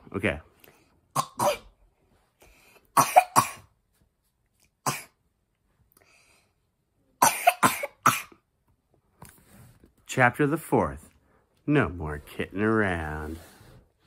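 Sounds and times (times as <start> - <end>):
person pretend coughing: 1.2 - 1.8, 3.0 - 3.7, 7.2 - 8.4.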